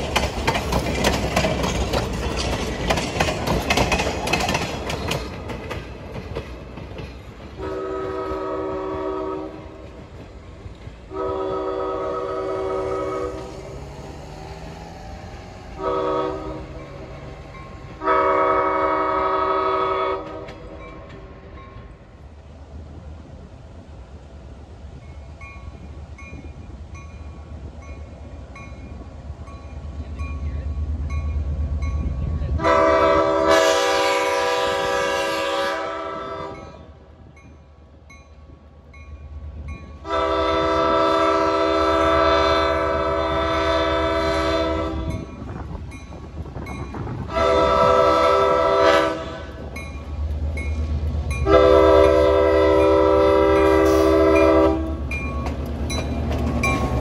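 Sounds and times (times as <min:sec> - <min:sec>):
train cars rumbling on rails: 0:00.0 - 0:57.0
locomotive horn blasts: 0:07.6 - 0:09.8, 0:11.1 - 0:13.6, 0:15.7 - 0:17.0, 0:17.9 - 0:20.7, 0:32.6 - 0:37.0, 0:40.0 - 0:45.3, 0:47.3 - 0:49.7, 0:51.4 - 0:55.1.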